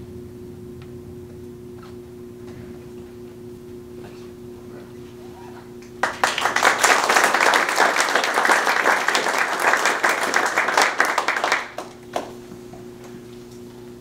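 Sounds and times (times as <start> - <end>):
audience applauding: 6.0 - 12.4.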